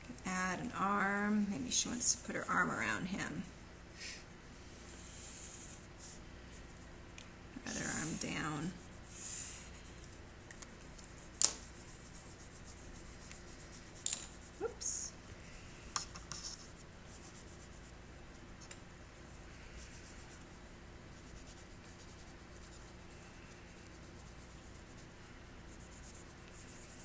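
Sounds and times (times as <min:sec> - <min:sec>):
pencil scratching on paper: 0:07.6 - 0:09.9, 0:16.0 - 0:18.0, 0:25.7 - 0:27.0.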